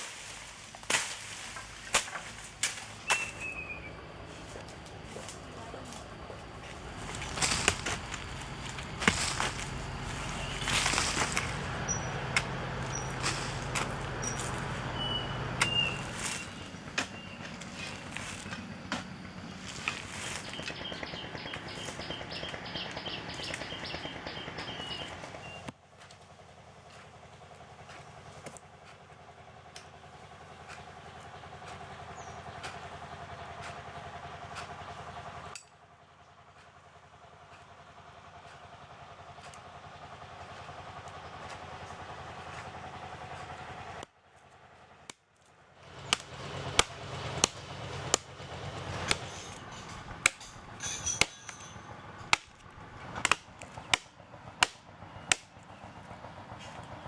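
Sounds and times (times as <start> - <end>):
scraping of dirt: 0.0 - 23.0, 24.6 - 35.6, 38.4 - 44.0, 45.9 - 54.0
chopping strikes in soil: 0.8 - 3.5, 7.0 - 11.6, 12.3 - 14.6, 46.1 - 48.3, 49.0 - 51.7, 52.3 - 55.5.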